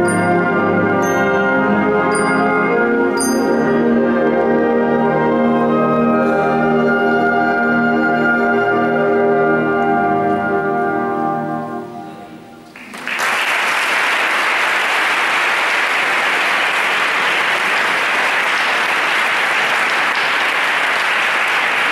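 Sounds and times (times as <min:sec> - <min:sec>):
symphonic band chord: 0:00.0 - 0:12.6
audience applause: 0:12.7 - 0:21.9.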